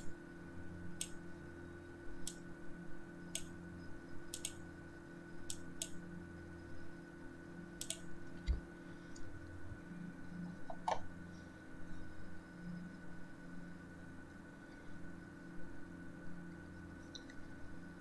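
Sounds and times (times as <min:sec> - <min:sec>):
low electrical hum: 0:00.0 - 0:18.0
thin high whine: 0:00.0 - 0:18.0
computer mouse clicks: 0:03.3 - 0:03.5, 0:04.3 - 0:04.6, 0:05.4 - 0:06.0, 0:07.8 - 0:08.6.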